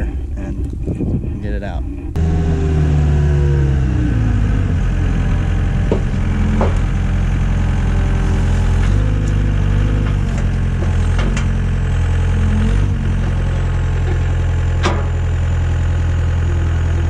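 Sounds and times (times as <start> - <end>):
loader engine idling: 0.0 - 17.0.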